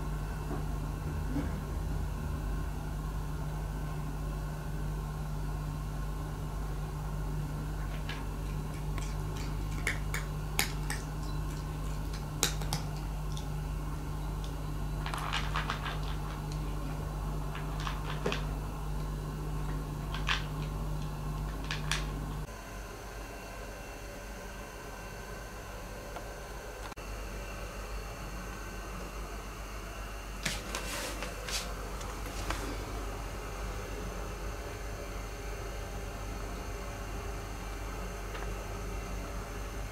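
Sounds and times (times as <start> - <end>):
low hum: 0.0 - 22.5
cat eating from ceramic bowl: 7.6 - 22.4.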